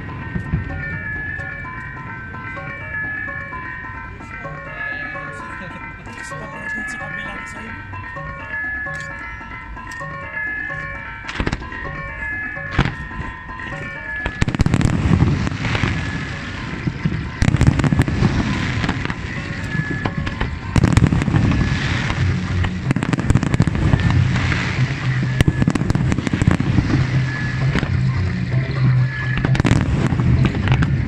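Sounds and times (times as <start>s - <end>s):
music playing: 0.0s - 31.0s
fireworks bursting and crackling: 10.8s - 31.0s.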